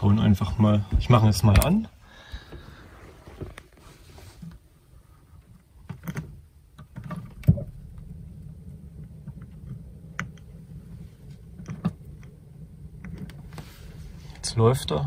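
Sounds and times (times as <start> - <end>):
gas burner rumble: 6.4 - 15.0.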